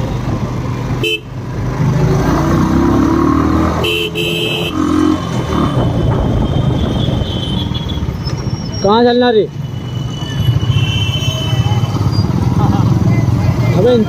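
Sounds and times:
motorcycle engine rumble: 0:00.0 - 0:14.0
wind and road noise: 0:00.0 - 0:14.0
vehicle horn honking: 0:01.0 - 0:01.3, 0:03.8 - 0:05.1, 0:05.8 - 0:08.1, 0:09.9 - 0:12.1.

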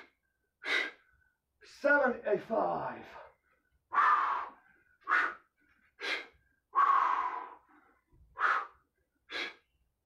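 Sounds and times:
man breathing hard: 0:00.0 - 0:01.4, 0:03.2 - 0:09.8.

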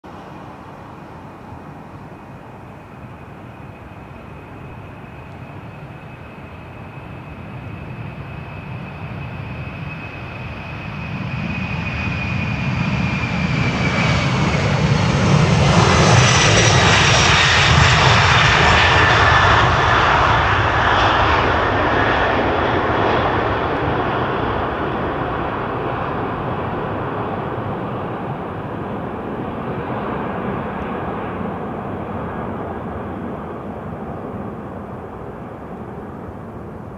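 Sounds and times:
jet engines roaring at takeoff: 0:00.1 - 0:36.9.

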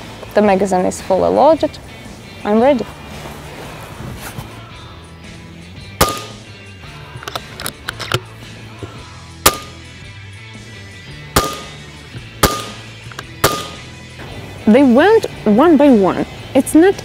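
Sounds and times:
background music: 0:00.0 - 0:17.0
air rifle shots: 0:06.0 - 0:06.5, 0:09.4 - 0:09.8, 0:11.3 - 0:14.0.

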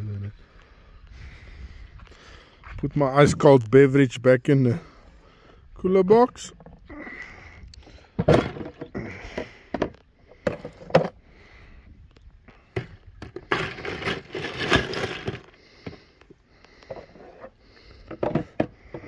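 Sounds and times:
scraping and rustling: 0:12.8 - 0:16.0.

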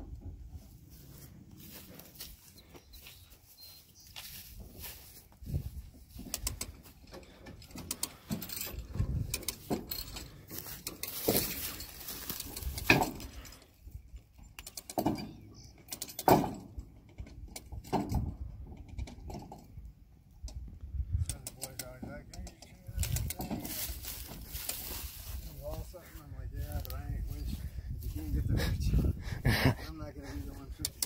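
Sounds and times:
winch ratcheting clicks: 0:06.1 - 0:18.2, 0:21.2 - 0:23.6, 0:30.8 - 0:31.0.

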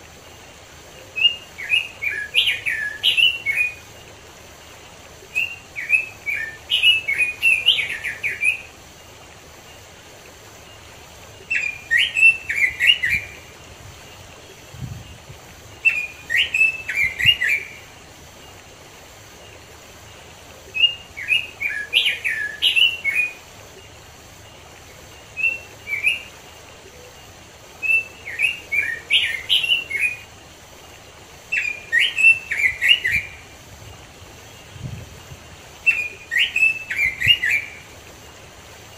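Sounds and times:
faint background hiss: 0:00.0 - 0:38.9
bird singing warbling phrases: 0:00.9 - 0:04.1, 0:05.2 - 0:08.8, 0:10.7 - 0:17.9, 0:20.7 - 0:24.0, 0:25.2 - 0:27.2, 0:27.8 - 0:30.3, 0:31.4 - 0:33.6, 0:34.4 - 0:37.9.

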